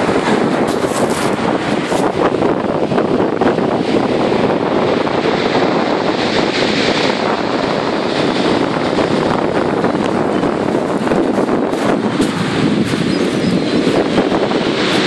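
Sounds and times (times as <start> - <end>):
surf breaking on shingle: 0.0 - 2.4, 9.6 - 15.0
wind on microphone: 0.0 - 15.0.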